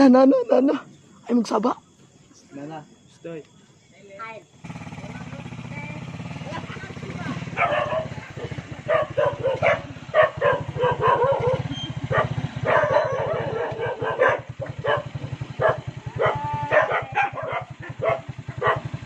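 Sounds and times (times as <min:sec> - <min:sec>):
small engine running: 0:04.6 - 0:19.0
dog barking: 0:07.5 - 0:19.0.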